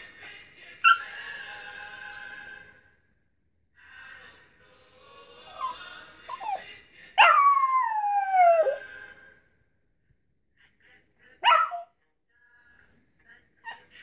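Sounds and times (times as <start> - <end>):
dog howling: 7.2 - 8.9.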